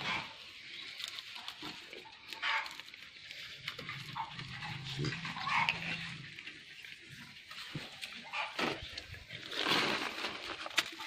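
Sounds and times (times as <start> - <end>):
scraping and rustling: 0.0 - 11.0
animal grunts and squeaks: 3.8 - 6.4, 8.2 - 8.9.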